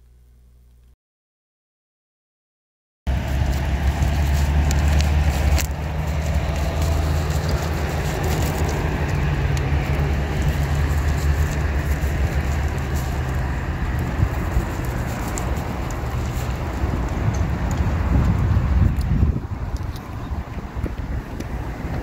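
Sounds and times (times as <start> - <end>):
plastic bag crinkling: 3.1 - 17.2
wind buffeting microphone: 3.1 - 22.0.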